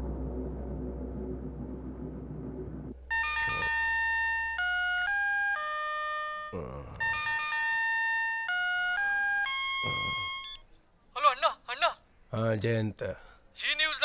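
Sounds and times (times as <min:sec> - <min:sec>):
mobile phone ringtone melody: 0:03.1 - 0:10.6.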